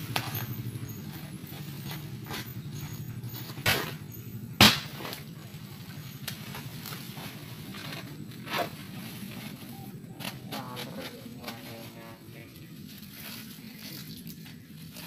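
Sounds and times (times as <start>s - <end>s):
steady low hum: 0.0s - 15.0s
plastic sacks rustling and scraping: 4.8s - 15.0s.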